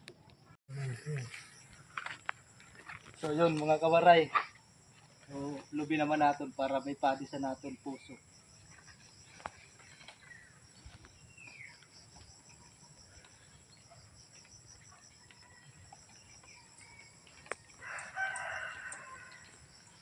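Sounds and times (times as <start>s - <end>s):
faint high insect hum: 0.2s - 20.0s
rooster crowing: 17.0s - 19.8s.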